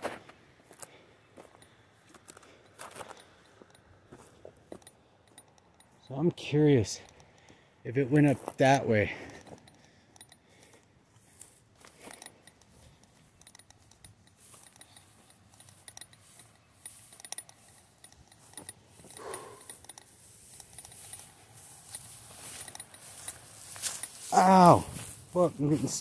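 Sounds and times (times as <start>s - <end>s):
metallic jingling of gear: 1.5s - 26.0s
footsteps through dry brush: 8.0s - 26.0s.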